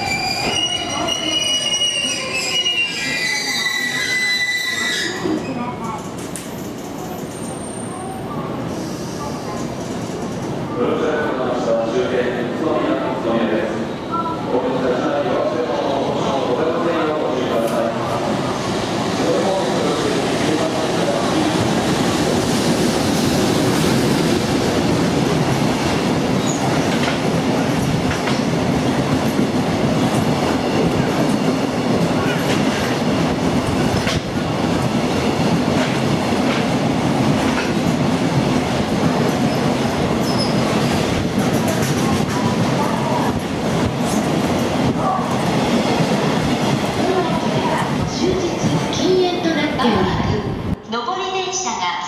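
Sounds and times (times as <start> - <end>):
freight train wagons on rails: 16.1 - 49.8.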